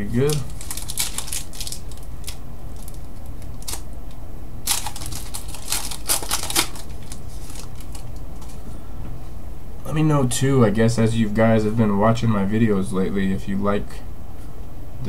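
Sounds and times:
steady low hum: 0.0s - 15.0s
trading cards flicking: 4.7s - 8.3s.

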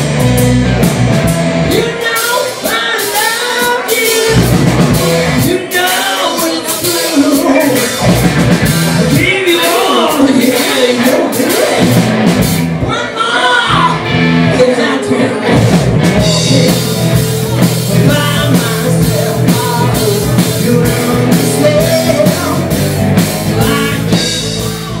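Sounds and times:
bass guitar: 0.0s - 25.0s
drum kit: 0.0s - 25.0s
electric guitar: 0.0s - 25.0s.

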